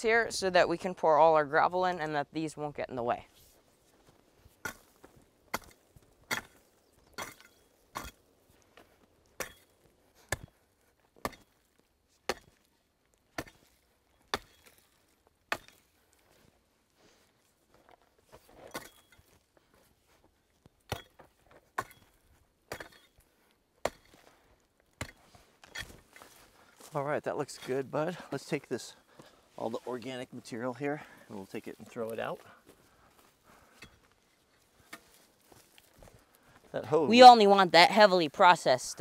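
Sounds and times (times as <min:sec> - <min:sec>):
hoe chopping into roots and dirt: 0:04.5 - 0:08.3, 0:09.3 - 0:16.2, 0:18.4 - 0:19.4, 0:20.8 - 0:23.2, 0:23.8 - 0:26.9, 0:34.8 - 0:35.8.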